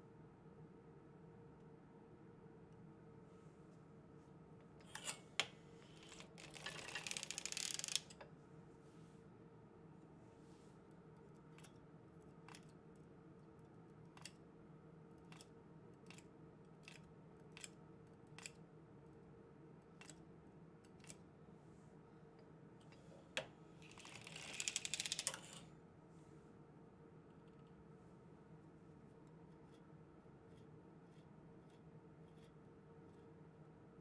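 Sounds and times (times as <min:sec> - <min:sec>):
knitting machine needles clicking: 0:05.9 - 0:08.2, 0:18.3 - 0:18.6, 0:23.8 - 0:25.6.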